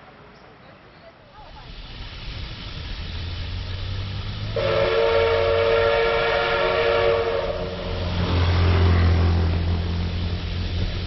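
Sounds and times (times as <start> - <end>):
locomotive horn blast: 4.5 - 9.2.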